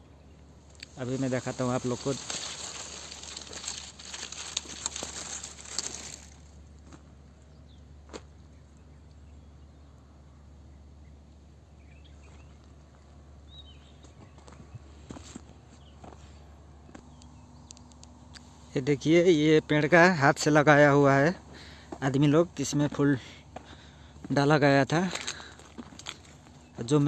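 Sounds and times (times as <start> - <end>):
outdoor background: 0.0 - 27.0
dry palm fronds rustling: 0.6 - 7.1, 22.8 - 27.0.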